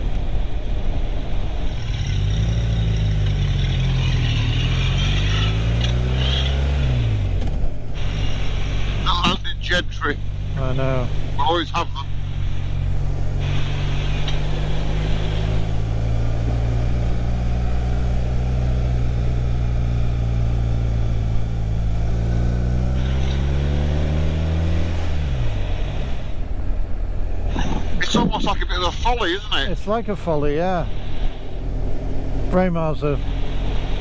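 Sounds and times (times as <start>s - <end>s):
motorcycle engine cruising: 0.0s - 34.0s
road noise: 0.0s - 34.0s
wind noise: 26.0s - 28.9s.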